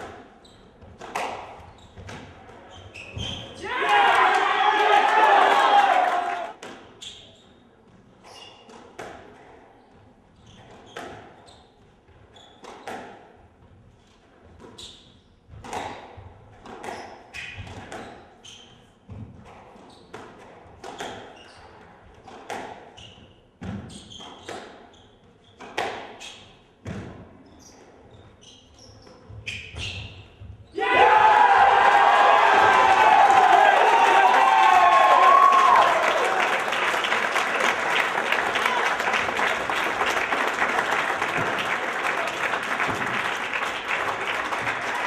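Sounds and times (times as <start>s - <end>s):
squash ball hitting rackets and walls: 0.0s - 3.5s, 6.6s - 30.6s
shoes squeaking on wooden floor: 1.6s - 3.6s.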